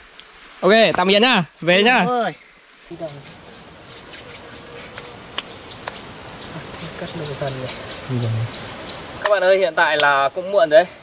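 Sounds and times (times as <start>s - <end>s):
faint ticks: 2.9s - 10.2s
insects droning: 2.9s - 11.0s.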